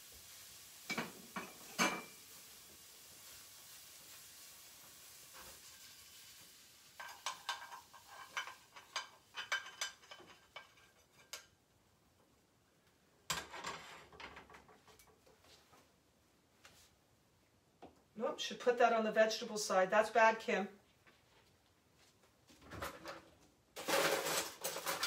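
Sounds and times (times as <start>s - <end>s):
faint steady hiss: 0.0s - 25.0s
metal utensil scraping frying pan: 7.0s - 11.4s.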